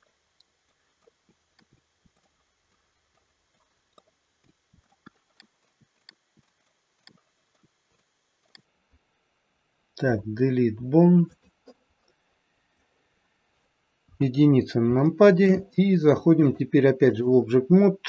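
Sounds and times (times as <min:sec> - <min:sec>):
computer mouse and keyboard clicks: 0:00.4 - 0:08.7.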